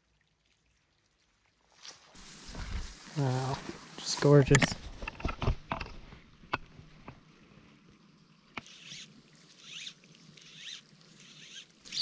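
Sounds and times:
fly line zipping through guides: 0:08.6 - 0:12.0.

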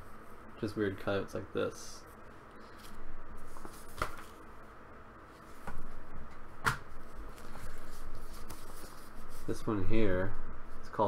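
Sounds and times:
paper rustling: 0:02.6 - 0:04.4, 0:07.0 - 0:09.6.

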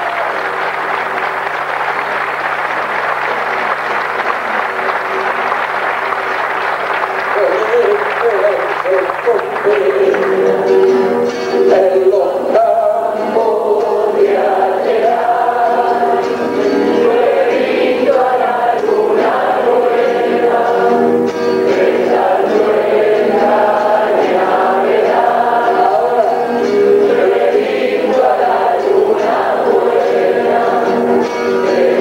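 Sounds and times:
acoustic guitars: 0:00.0 - 0:32.0
men singing: 0:09.0 - 0:10.8, 0:11.6 - 0:32.0.

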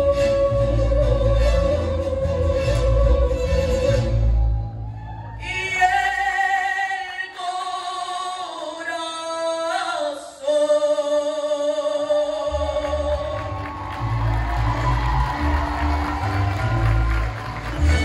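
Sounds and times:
mariachi ensemble playing: 0:00.0 - 0:04.9, 0:13.5 - 0:18.0.

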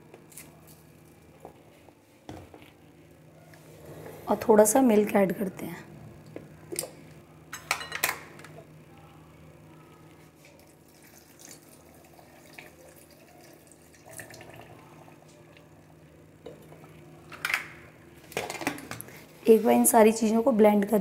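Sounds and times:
milk pouring into blender jar: 0:10.6 - 0:15.0.

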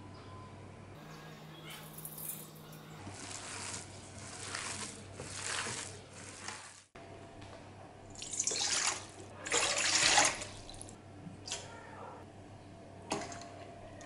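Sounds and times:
hands kneading minced meat: 0:03.0 - 0:07.0.

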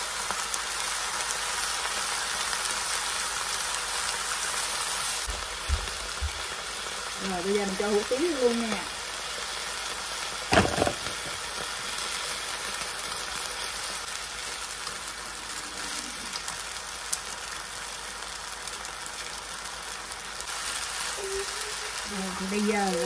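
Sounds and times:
noodles sizzling in a wok: 0:00.0 - 0:23.0
loud knock: 0:10.5 - 0:11.4.

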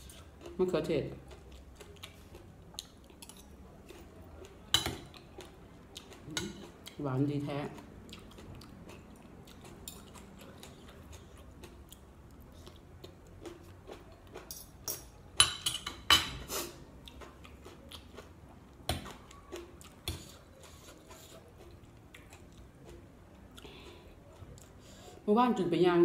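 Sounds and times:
person chewing: 0:01.2 - 0:07.0, 0:07.7 - 0:25.2
cutlery clinking and scraping on plate: 0:14.4 - 0:16.5.

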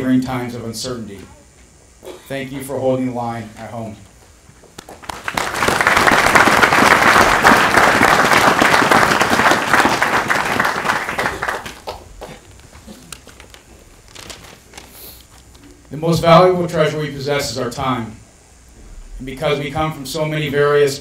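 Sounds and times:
audience applauding: 0:04.6 - 0:13.6.

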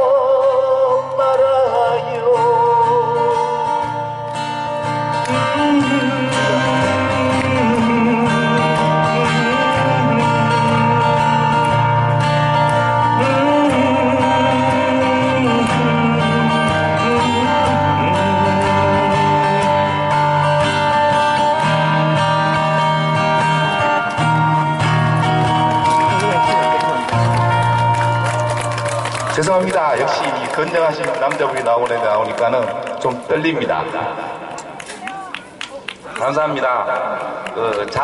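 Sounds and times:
two acoustic guitars playing: 0:00.0 - 0:31.8.

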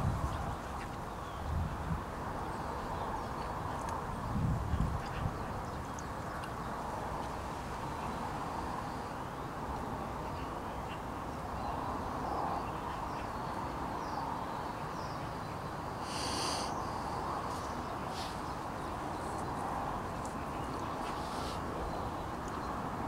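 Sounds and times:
small birds chirping: 0:10.3 - 0:23.0
short harsh bird call: 0:16.0 - 0:16.9.

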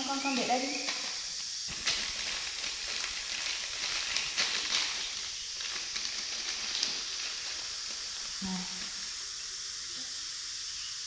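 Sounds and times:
plastic packet crinkling: 0:00.0 - 0:09.2
background hiss: 0:00.0 - 0:11.0.

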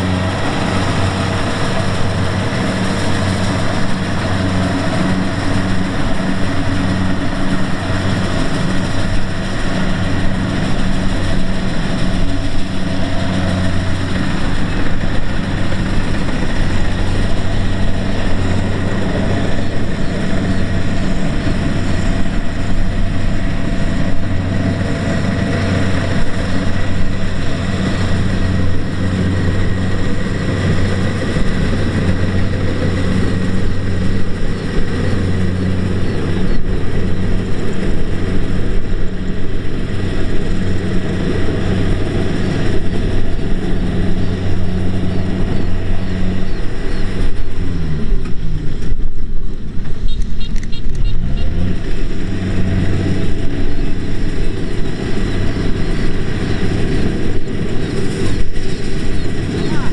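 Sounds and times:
combine harvester engine running: 0:00.0 - 0:59.9.

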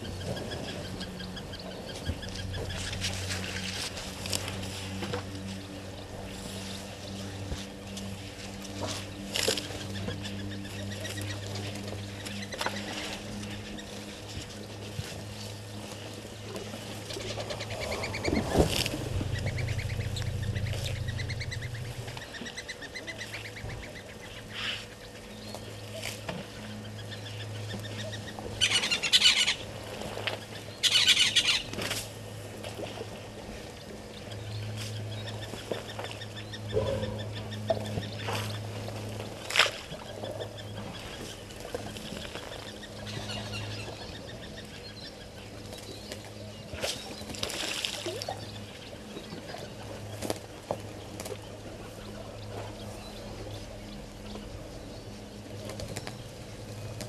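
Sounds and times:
birds calling: 0:00.0 - 0:57.0
low hum: 0:00.0 - 0:57.0
rapid bird trills: 0:16.7 - 0:31.8.

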